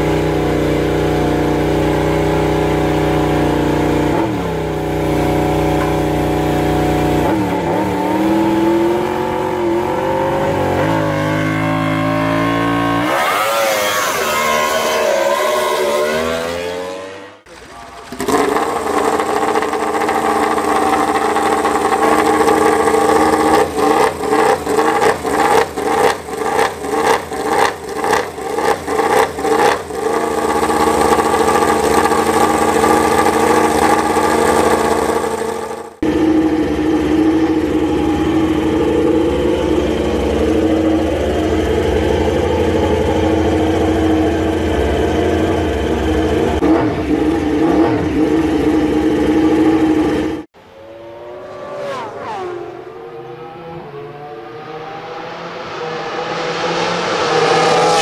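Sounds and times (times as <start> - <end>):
motorcycle engine running steadily: 0.0 - 13.0, 17.6 - 50.5
racing motorcycle engine revving: 0.0 - 58.0.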